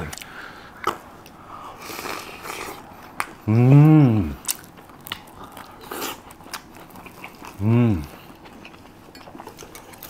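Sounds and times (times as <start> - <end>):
person humming mmm: 3.4 - 4.6, 7.5 - 8.3
crunchy chewing: 4.4 - 10.0.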